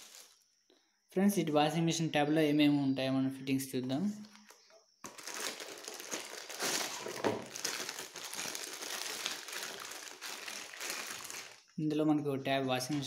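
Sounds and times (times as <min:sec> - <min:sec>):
plastic packaging crinkling: 0:00.0 - 0:00.4, 0:04.3 - 0:11.8, 0:12.8 - 0:13.0.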